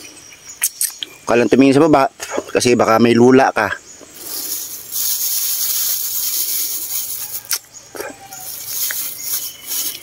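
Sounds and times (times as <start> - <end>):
light rustling: 4.0 - 10.0
breath hissing through lips: 4.2 - 6.0.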